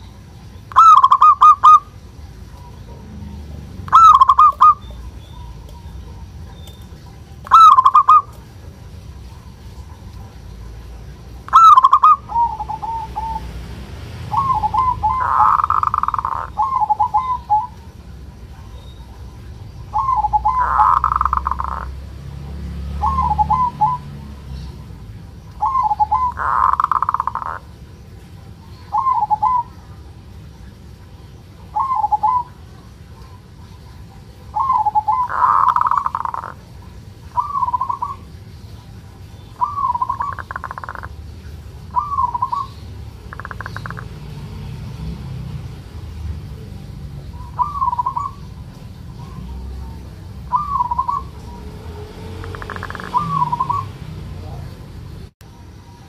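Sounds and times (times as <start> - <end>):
buzzy rattling bird call: 0.6 - 2.8, 3.8 - 13.4, 14.3 - 18.0, 19.8 - 22.0, 25.6 - 27.8, 33.9 - 38.3, 39.5 - 44.2, 52.4 - 53.9
dove cooing: 0.7 - 13.6, 14.2 - 22.0, 23.0 - 27.8, 28.7 - 30.0, 31.6 - 38.4, 39.2 - 44.3, 46.4 - 54.8.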